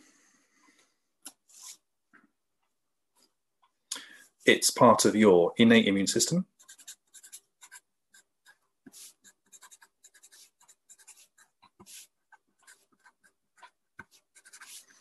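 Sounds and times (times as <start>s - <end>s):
marker pen writing on paper: 6.4s - 15.0s.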